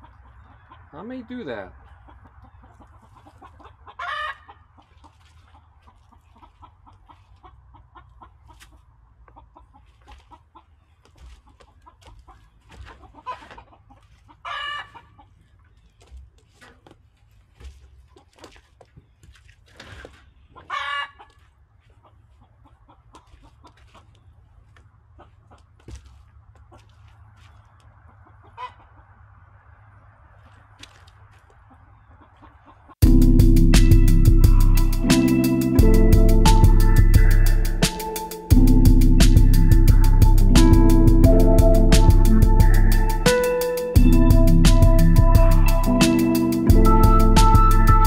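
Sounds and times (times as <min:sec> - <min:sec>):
chickens clucking: 0:00.0 - 0:17.0, 0:20.2 - 0:30.7, 0:31.4 - 0:33.0
chicken short calls: 0:01.9 - 0:04.9, 0:11.4 - 0:15.4, 0:20.6 - 0:21.4.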